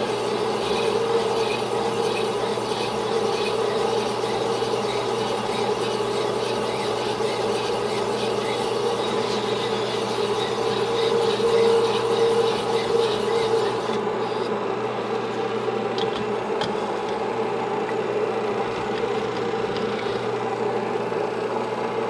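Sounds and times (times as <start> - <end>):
gritty rasp of stone on sleeve: 0.0 - 14.4.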